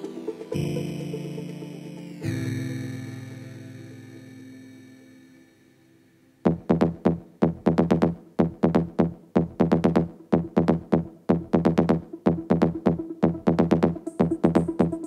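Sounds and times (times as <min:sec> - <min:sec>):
drum machine: 0:06.5 - 0:15.0
synth bassline: 0:06.5 - 0:15.0.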